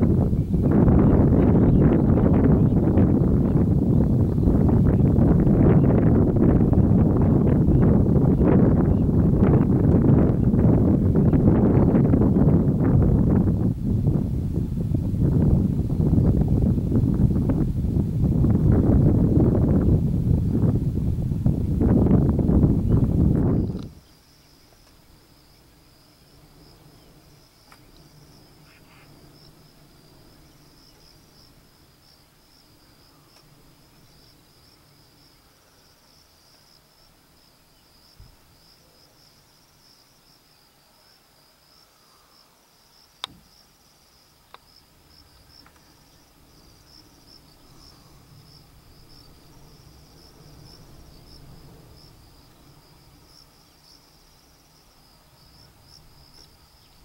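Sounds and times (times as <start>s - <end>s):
insects chirring: 0.0s - 57.0s
sharp click: 43.2s - 43.4s.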